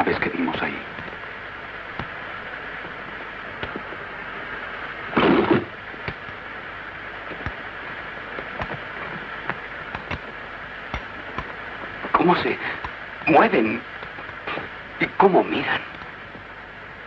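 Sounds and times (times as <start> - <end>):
crackles: 0.0 - 17.0
rumbling hissing ambience: 0.0 - 17.0
loud burst: 5.1 - 5.8.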